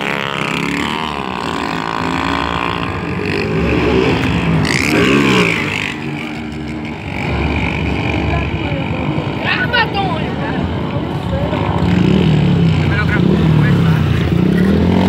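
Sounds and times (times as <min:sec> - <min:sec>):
motorcycle engines revving: 0:00.0 - 0:15.0.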